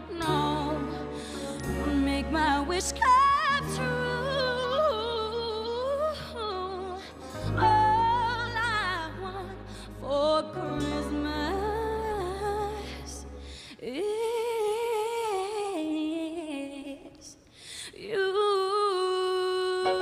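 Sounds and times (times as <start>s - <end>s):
woman singing into microphone: 0.0s - 20.0s
singer breathing: 0.9s - 1.7s, 13.3s - 13.8s, 17.4s - 18.0s.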